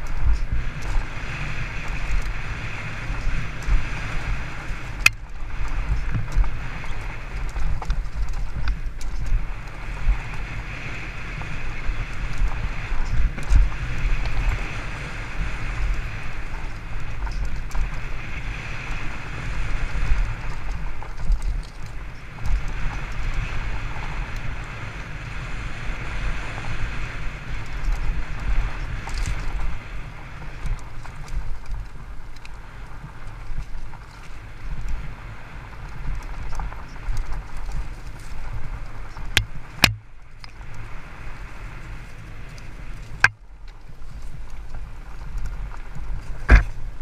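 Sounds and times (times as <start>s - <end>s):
bike tyres rattling over stones: 0.0s - 47.0s
wind on microphone: 0.0s - 47.0s
sharp knocks from bike: 46.4s - 46.9s.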